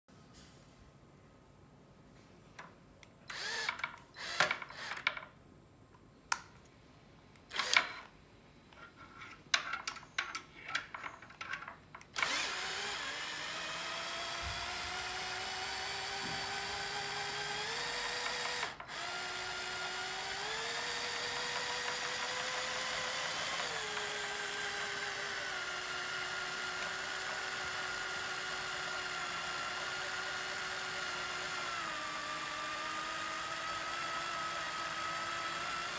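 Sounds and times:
power drill motor whining: 0:03.3 - 0:05.2, 0:07.5 - 0:08.1, 0:12.1 - 0:35.9
sharp clicks and knocks: 0:09.3 - 0:12.4, 0:21.2 - 0:22.9.

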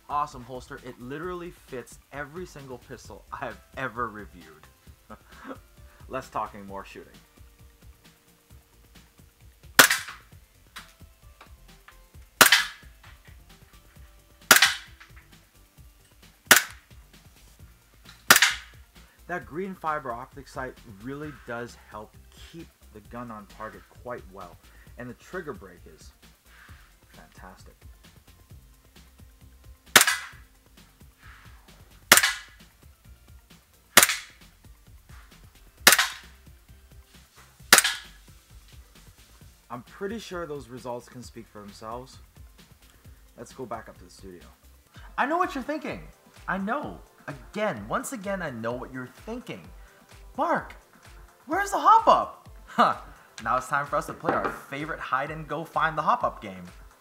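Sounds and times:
airsoft pistol shots: 0:09.8 - 0:10.2, 0:12.4 - 0:12.9, 0:14.5 - 0:15.0, 0:16.5 - 0:16.8, 0:18.3 - 0:18.8, 0:29.9 - 0:30.4, 0:32.1 - 0:32.6, 0:34.0 - 0:34.4, 0:35.8 - 0:36.3, 0:37.7 - 0:38.2.

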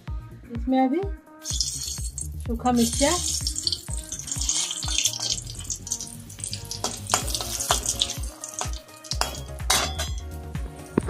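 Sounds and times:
background music with beat: 0:00.0 - 0:11.0
chillies sizzling in hot oil: 0:01.4 - 0:10.2.

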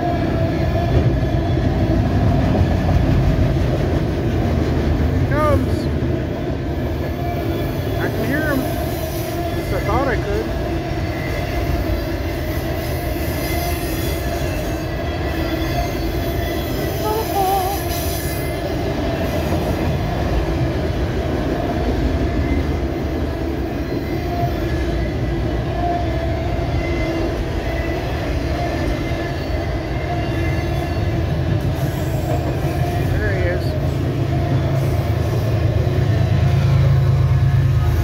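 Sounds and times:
steel wheels rumbling on rail: 0:00.0 - 0:38.0
wheels squealing: 0:07.0 - 0:19.8.

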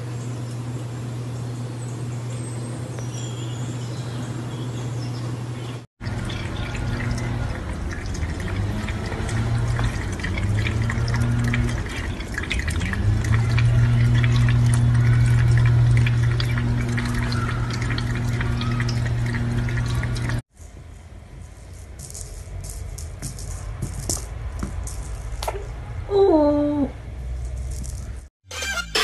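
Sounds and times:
low hum: 0:00.0 - 0:28.2
faucet water splashing into sink: 0:06.0 - 0:20.4.

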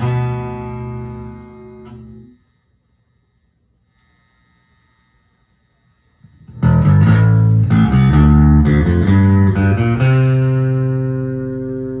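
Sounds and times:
electric bass guitar plucked notes: 0:00.0 - 0:02.4, 0:06.4 - 0:12.0.

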